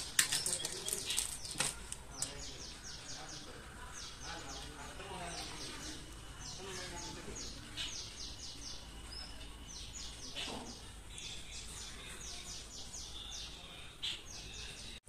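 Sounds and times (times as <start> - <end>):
bird chirping: 0.0 - 15.0.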